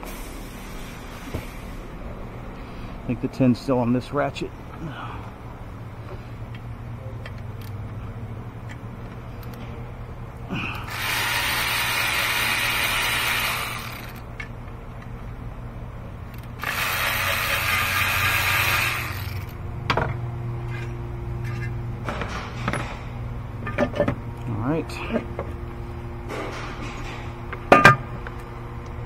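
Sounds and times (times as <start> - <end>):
electric ratchet spinning bolts: 10.9 - 14.4, 16.3 - 19.6.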